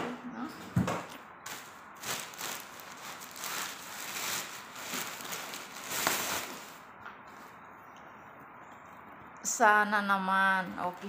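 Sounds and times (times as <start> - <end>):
plastic bag rustling: 1.4 - 7.5.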